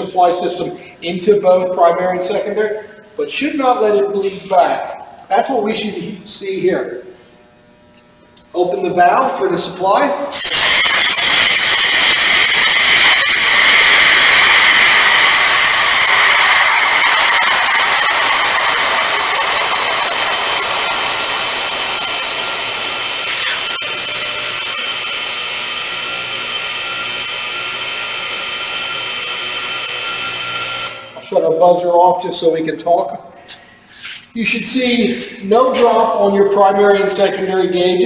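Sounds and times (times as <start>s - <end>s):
compressed air hissing: 10.3s - 23.8s
low-air warning buzzer: 10.3s - 31.2s.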